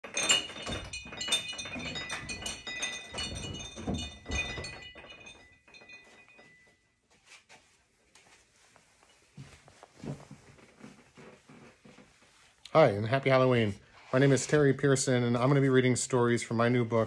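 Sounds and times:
hanging chimes jangling: 0.0s - 7.0s.

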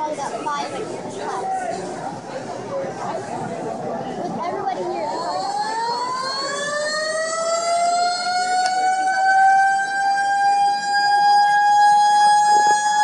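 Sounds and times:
siren wailing: 4.9s - 13.0s.

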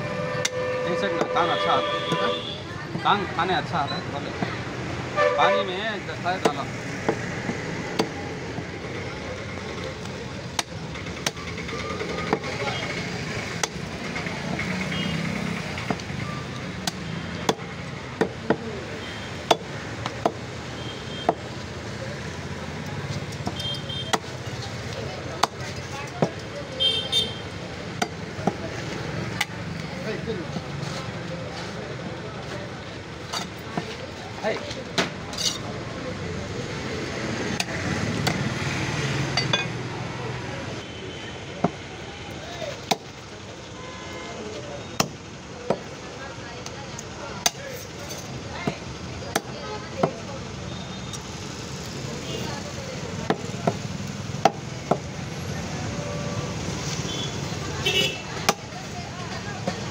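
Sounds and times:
cleaver chopping on wooden block: 16.8s - 18.6s, 19.4s - 20.4s.

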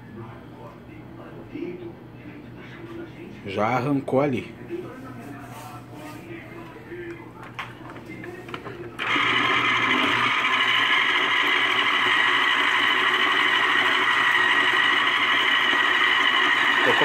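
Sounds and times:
citrus juicer motor running: 9.0s - 17.0s.

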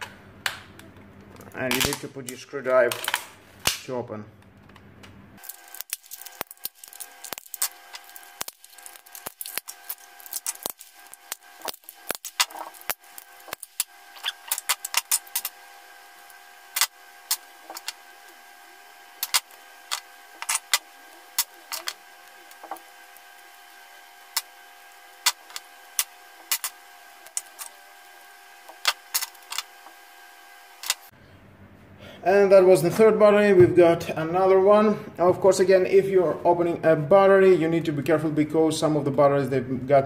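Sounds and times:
plastic casing cracking and snapping: 5.4s - 15.5s.

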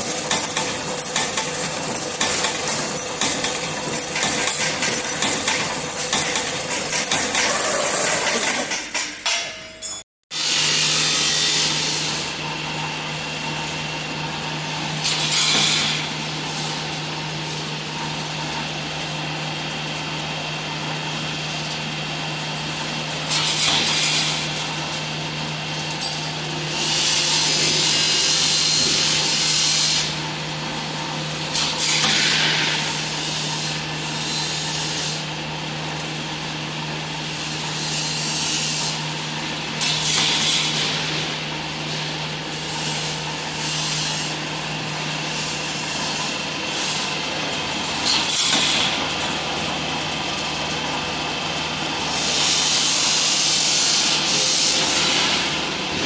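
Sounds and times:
machine motor hum and whir: 10.4s - 56.0s.

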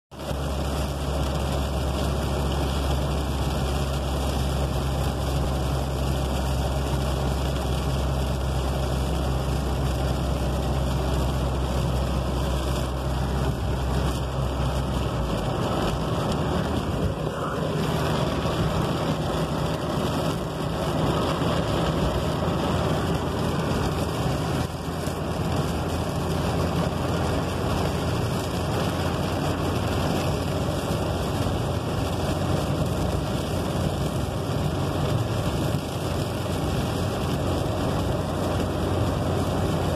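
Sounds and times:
car engine and tyre noise: 0.1s - 39.9s
rain hiss: 0.2s - 39.9s
low drone: 14.5s - 19.8s.

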